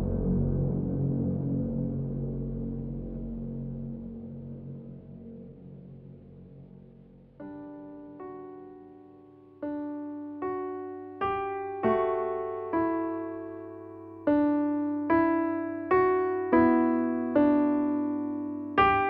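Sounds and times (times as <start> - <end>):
slow gentle piano piece: 0.0 - 19.0.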